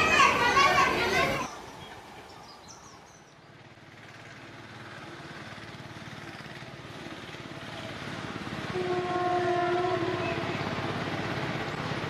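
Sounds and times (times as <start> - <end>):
train running: 0.0 - 12.0
train horn: 8.7 - 10.7.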